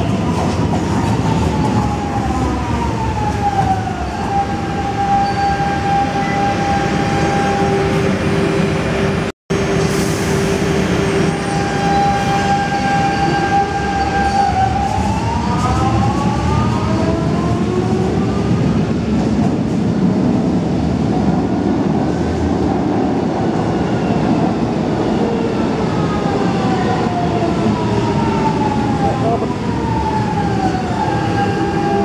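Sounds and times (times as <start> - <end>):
braking train whine: 0.0 - 19.6.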